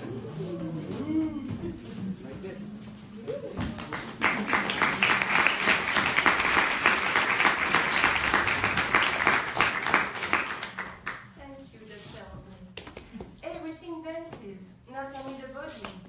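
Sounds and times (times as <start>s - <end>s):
audience applauding: 3.7s - 11.3s.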